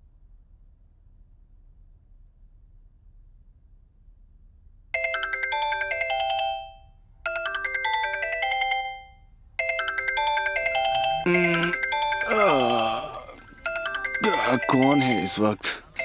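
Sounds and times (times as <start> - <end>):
phone ringtone tune: 5.0 - 16.0.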